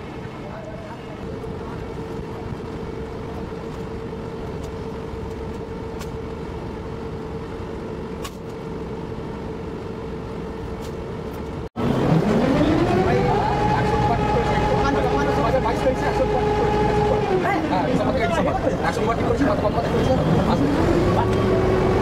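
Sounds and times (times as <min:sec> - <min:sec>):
engine drone: 0:00.0 - 0:22.0
rising gliding tones: 0:11.8 - 0:17.9.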